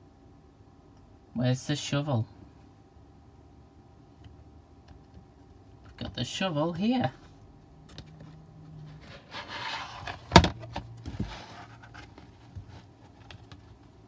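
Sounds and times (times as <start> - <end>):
cardboard page rustling: 8.9 - 13.9.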